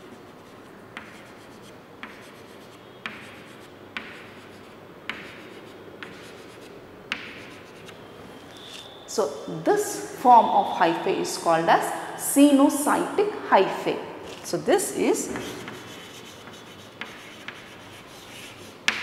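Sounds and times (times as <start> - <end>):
chalk tapping on chalkboard: 0.0 - 7.9, 15.2 - 19.0.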